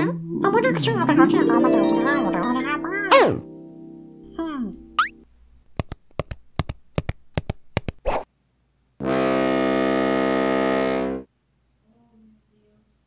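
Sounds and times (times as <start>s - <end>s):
sharp tiptoe clicks: 5.7s - 8.1s
buzzy brassy synthesizer note: 9.0s - 11.3s.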